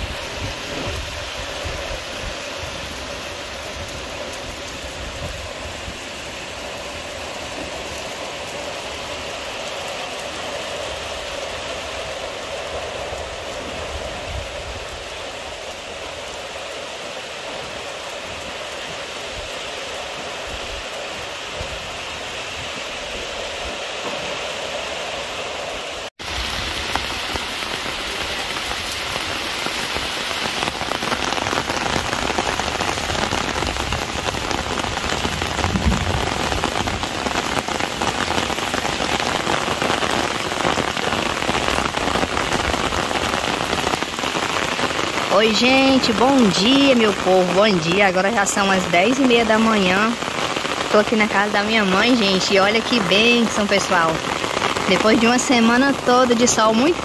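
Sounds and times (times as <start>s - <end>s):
steady rain falling: 0.0s - 57.0s
water pouring off roof: 26.1s - 47.9s.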